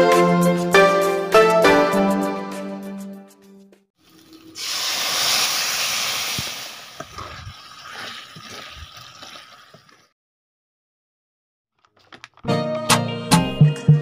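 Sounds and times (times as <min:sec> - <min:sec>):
curry paste sizzling in a pan: 0:04.5 - 0:10.0.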